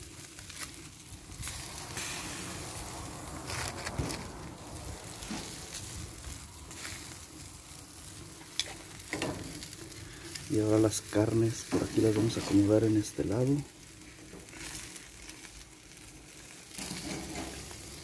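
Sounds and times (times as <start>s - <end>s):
meat sizzling on a grill: 0.0s - 18.0s
metal tongs clicking on grill grate: 8.4s - 9.6s.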